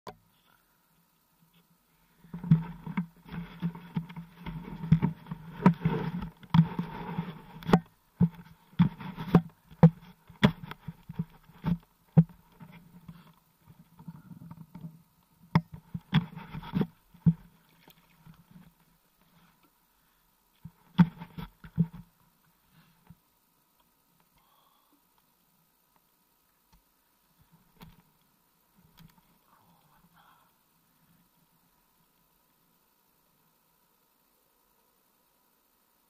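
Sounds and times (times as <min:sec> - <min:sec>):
sharp knocks and bumps: 0:07.6 - 0:12.3.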